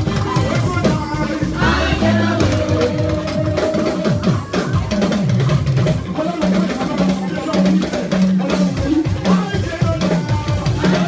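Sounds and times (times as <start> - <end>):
person singing: 0.0 - 5.2
dance music with drum beat: 0.0 - 11.0.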